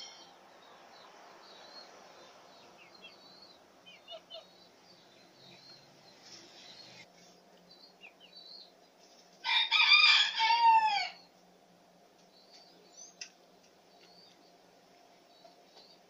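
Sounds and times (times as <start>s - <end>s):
small birds chirping: 0.0s - 9.4s, 12.1s - 16.0s
rooster crowing: 9.4s - 11.3s.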